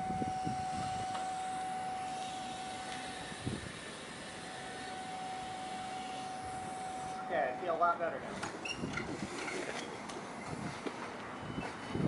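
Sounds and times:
forklift whining: 0.0 - 9.1.

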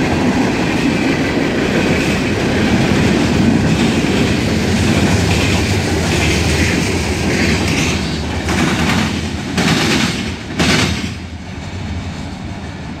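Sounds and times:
freight train wheels clattering: 0.0 - 13.0.

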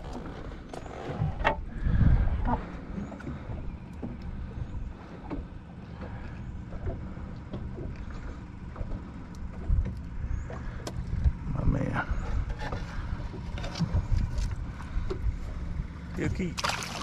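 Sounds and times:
water around a boat: 0.0 - 17.0
wind: 0.0 - 17.0
light clicks and ticks: 6.7 - 11.4.

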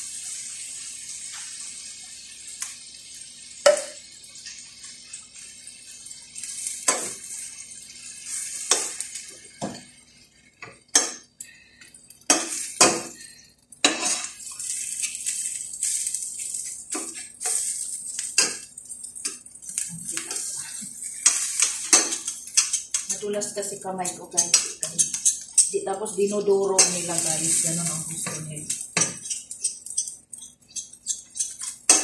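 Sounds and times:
frying sizzle: 0.0 - 32.0
metal spoon scraping frying pan: 13.8 - 18.6, 19.7 - 32.0.

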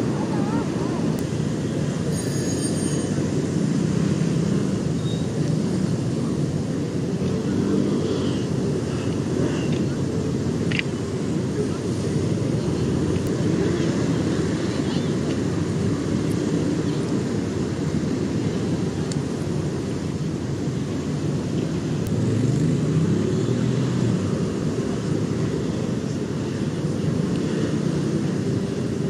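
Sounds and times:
rumble of passing vehicles: 0.0 - 29.0.

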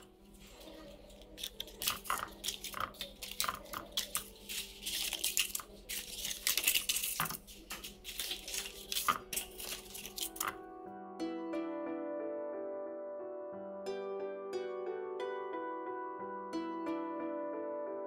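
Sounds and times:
paper liners rustling and crinkling: 0.0 - 10.6.

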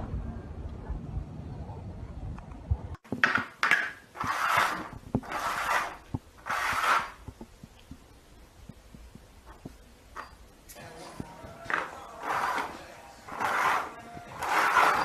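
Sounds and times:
plastic cups scraping on floor: 3.2 - 7.4, 11.7 - 15.0.

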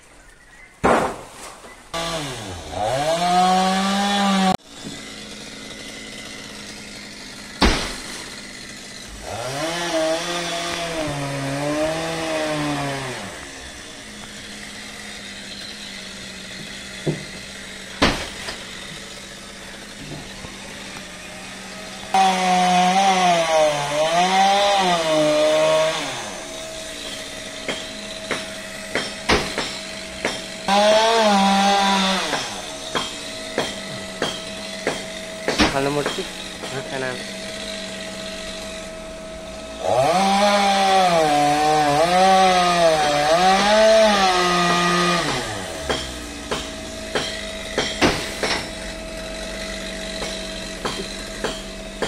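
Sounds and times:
chainsaw cutting wood: 0.8 - 52.0.

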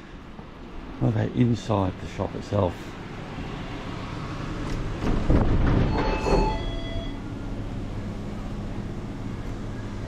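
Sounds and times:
metal door squealing and rattling: 5.0 - 7.3.

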